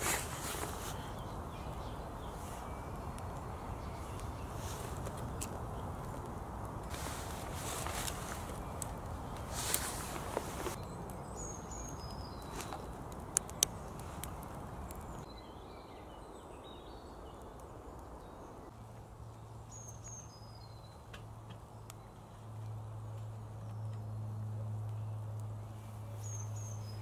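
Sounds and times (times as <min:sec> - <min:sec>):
campfire cracks: 0:00.0 - 0:15.3
woodland birds chirping: 0:00.0 - 0:27.0.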